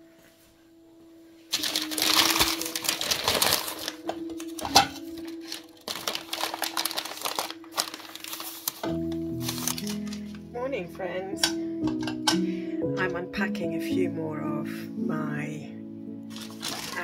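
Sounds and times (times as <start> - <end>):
crumpled paper rustling: 1.5 - 10.5, 16.3 - 17.0.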